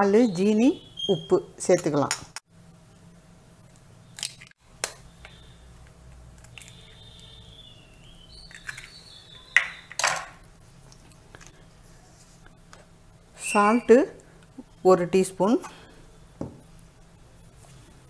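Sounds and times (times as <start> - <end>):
eggs cracking: 3.7 - 11.6.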